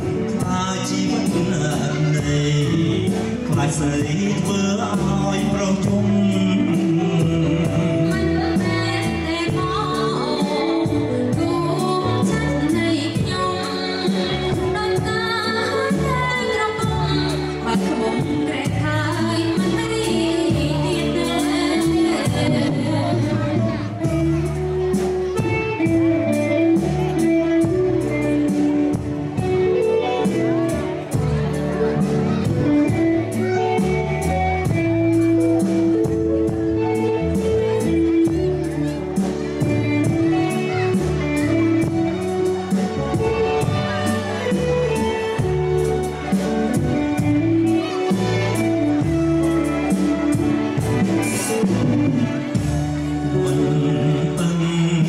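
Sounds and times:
man singing: 0:00.0 - 0:11.4, 0:53.1 - 0:55.0
bass guitar: 0:00.0 - 0:55.0
drum kit cymbal beat: 0:00.0 - 0:55.0
electric guitar: 0:00.0 - 0:55.0
keyboard notes: 0:00.0 - 0:55.0
live pop band playing: 0:00.0 - 0:55.0
woman singing: 0:00.3 - 0:24.3.

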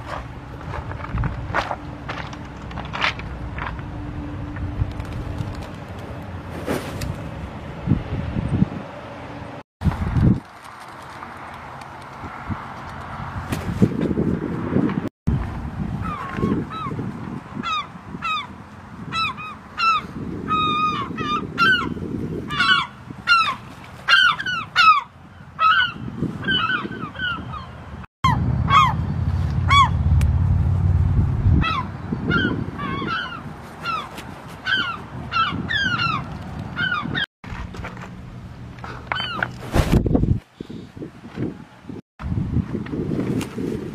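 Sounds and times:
gulls calling: 0:16.0 - 0:30.1, 0:31.6 - 0:37.3
low rumble: 0:28.3 - 0:32.2.

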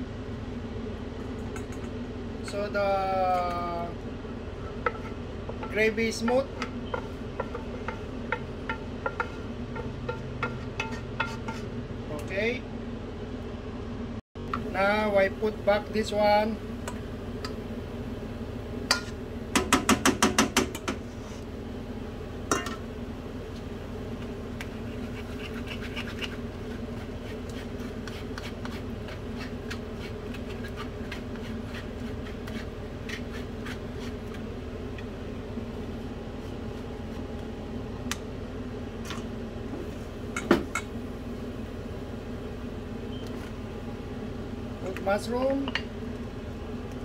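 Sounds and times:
steady hum: 0:00.0 - 0:47.0
cookware knocking on frying pan: 0:04.9 - 0:11.5, 0:18.9 - 0:21.0.

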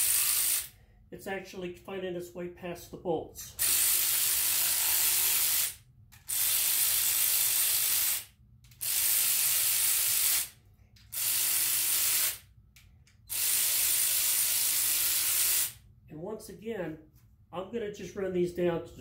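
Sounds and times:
power ratchet whirring: 0:00.0 - 0:00.7, 0:03.6 - 0:12.4, 0:13.2 - 0:15.8.

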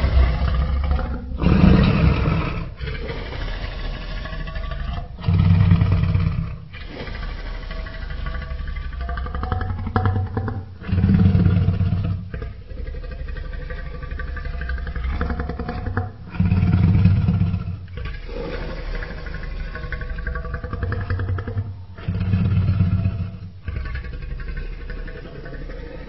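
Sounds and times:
deep dinosaur growling: 0:00.0 - 0:26.0.

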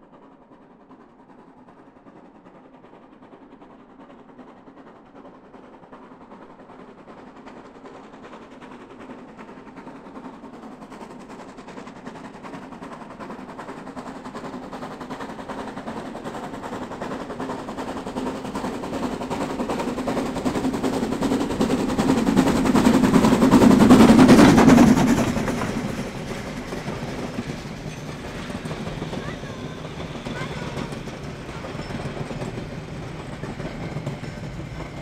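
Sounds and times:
steam locomotive exhaust beats: 0:00.0 - 0:35.0
coaches rolling by: 0:21.4 - 0:35.0.

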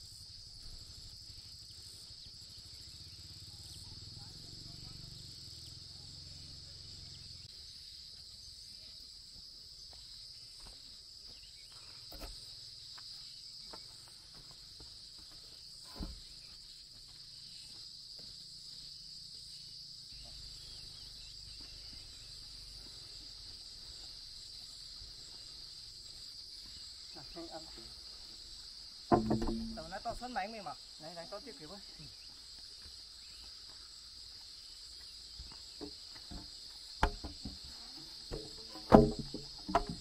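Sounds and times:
high-pitched insect chorus: 0:00.0 - 0:40.0
sharp knocks: 0:29.1 - 0:30.0, 0:37.0 - 0:37.6, 0:38.3 - 0:40.0.

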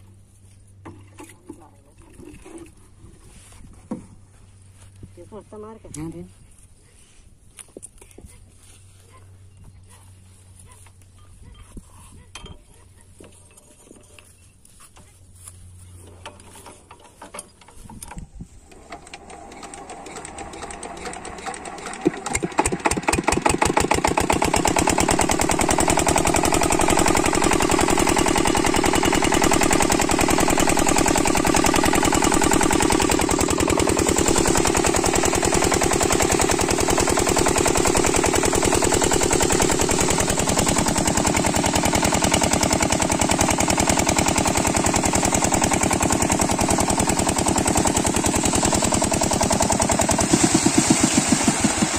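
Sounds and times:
diesel engine starting and running: 0:15.4 - 0:51.9
water rushing from pipe: 0:49.2 - 0:51.9.

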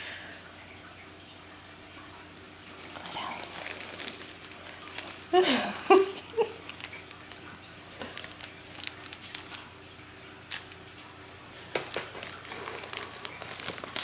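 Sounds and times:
faint steady hum: 0:00.0 - 0:14.0
paper shred rustling: 0:03.6 - 0:05.7, 0:06.4 - 0:09.7, 0:11.6 - 0:14.0.

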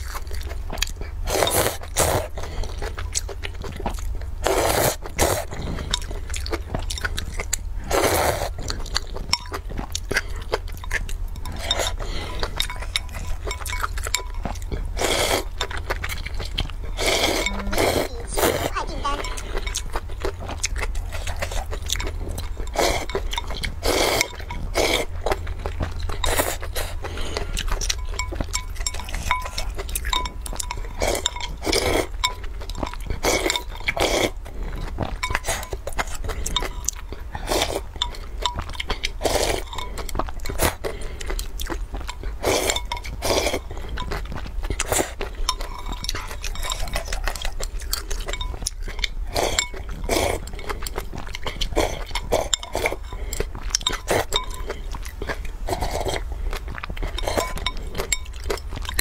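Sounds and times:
noodles slurped and chewed: 0:00.0 - 0:59.0
chopsticks clinking on glass bowl: 0:10.7 - 0:14.8, 0:15.6 - 0:18.4, 0:19.0 - 0:26.7, 0:27.7 - 0:34.1, 0:35.1 - 0:37.0, 0:38.0 - 0:39.0, 0:42.0 - 0:50.2, 0:50.9 - 0:55.4, 0:57.0 - 0:59.0
sipping broth: 0:16.8 - 0:19.8.

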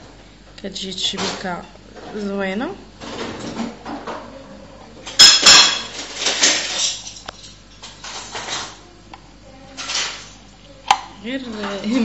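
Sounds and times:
metal utensils clinking: 0:05.2 - 0:08.7.

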